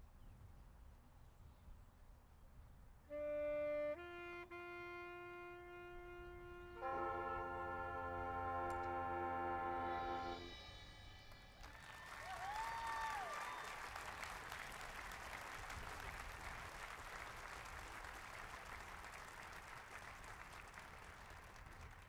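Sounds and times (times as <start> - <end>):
brass band chord: 3.1 - 11.2
audience applauding: 11.6 - 22.0.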